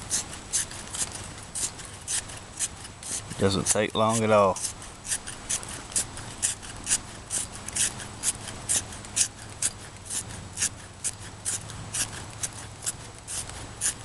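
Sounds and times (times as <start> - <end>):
pencil sharpener shaving wood: 0.0 - 14.0.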